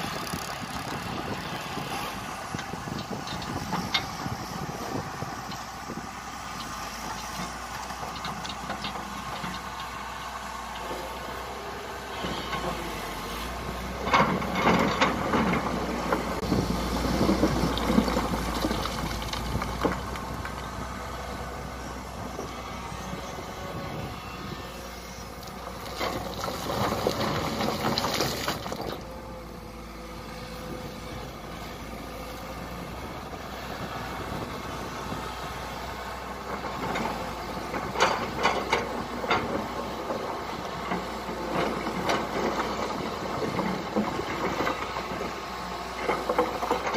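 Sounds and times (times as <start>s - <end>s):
excavator diesel engine running: 0.0s - 46.9s
rock and soil clattering: 13.9s - 20.8s, 25.5s - 29.1s, 36.3s - 46.9s.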